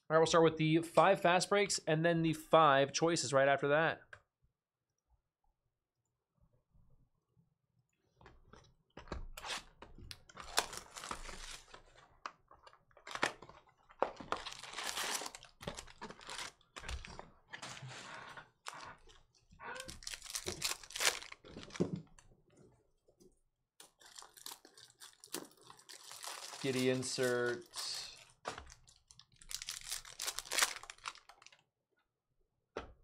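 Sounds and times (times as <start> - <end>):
wrapper ripping and crinkling: 10.4 - 11.8, 13.0 - 17.2, 19.8 - 21.9, 23.8 - 31.6.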